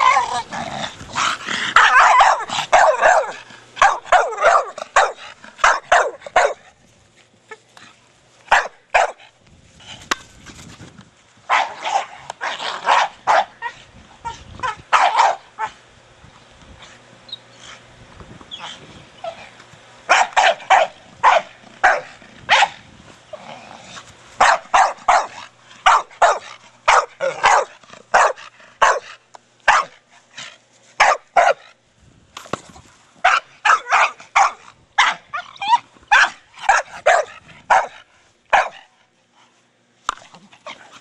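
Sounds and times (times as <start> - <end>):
dog barking: 1.8 - 6.6, 8.5 - 9.2, 11.5 - 12.1, 12.8 - 13.6, 14.9 - 15.7, 20.1 - 22.8, 24.4 - 29.1, 29.7 - 30.0, 31.0 - 31.6, 33.2 - 35.3, 36.1 - 38.9.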